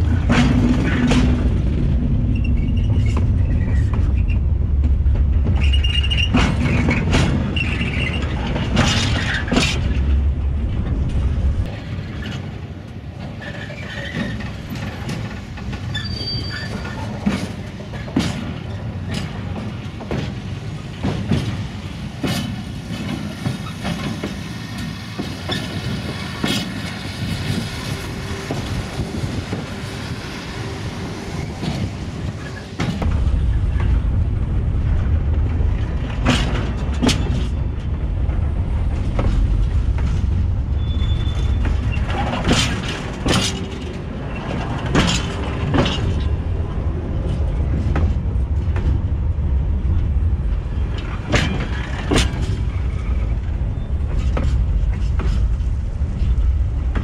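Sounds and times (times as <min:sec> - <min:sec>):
wagon wheels rumbling on track: 0:00.0 - 0:57.0
high wheel squeal: 0:15.9 - 0:17.2, 0:40.8 - 0:42.6.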